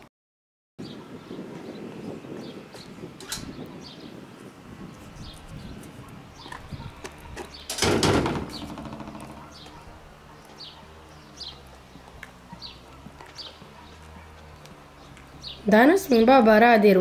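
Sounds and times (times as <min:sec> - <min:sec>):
metal gate clanking shut: 0:03.2 - 0:03.6, 0:07.6 - 0:09.7
bird chirping: 0:04.9 - 0:07.8, 0:08.4 - 0:16.4.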